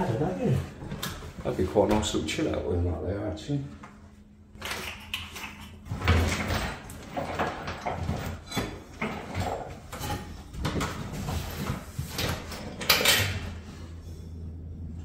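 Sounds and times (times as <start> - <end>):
wooden ladder knocking and creaking: 5.9 - 11.3.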